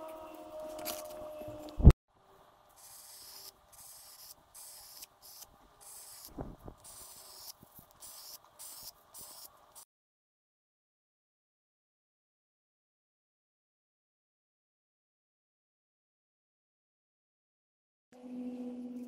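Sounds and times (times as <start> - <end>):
charcoal scratching on paper: 2.8 - 9.5.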